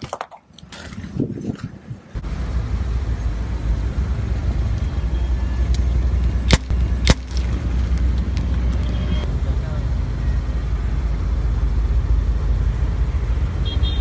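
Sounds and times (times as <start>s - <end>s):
car rumbling: 1.9s - 14.0s
sharp cracks: 6.4s - 8.9s.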